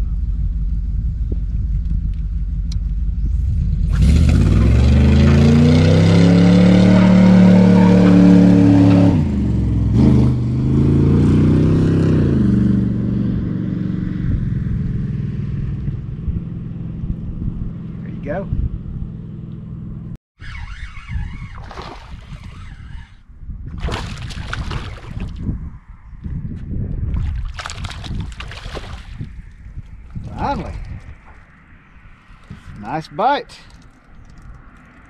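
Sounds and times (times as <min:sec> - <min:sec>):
car engine idling and revving: 0:00.0 - 0:20.2.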